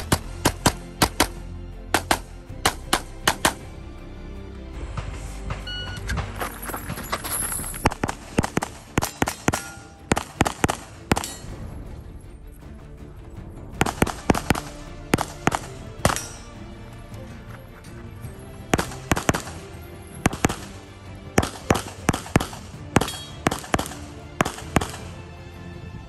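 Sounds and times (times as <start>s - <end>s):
rapid pistol shots: 0.0s - 1.4s, 2.0s - 3.6s, 7.8s - 11.4s, 13.8s - 16.4s, 18.7s - 19.6s, 20.2s - 20.7s, 21.4s - 25.1s
background music: 0.0s - 26.0s.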